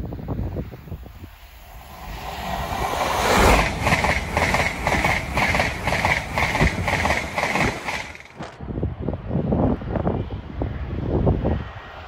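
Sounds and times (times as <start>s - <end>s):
high-speed train passing: 0.0s - 12.0s
wheels beating over rails: 1.6s - 8.6s.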